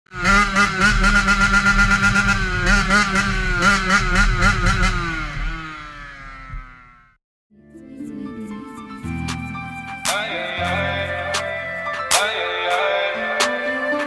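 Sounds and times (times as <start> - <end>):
motorcycle engine revving: 0.1 - 7.2.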